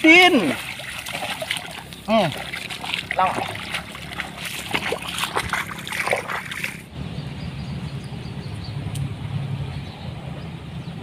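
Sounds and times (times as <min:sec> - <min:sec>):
water splashing and sloshing: 0:00.0 - 0:06.9.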